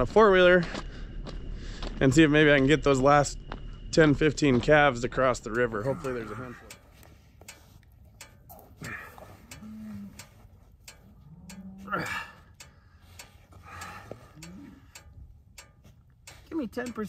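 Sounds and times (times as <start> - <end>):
cow moaning low: 5.7 - 6.8, 8.5 - 10.4, 11.0 - 12.6, 14.0 - 14.9.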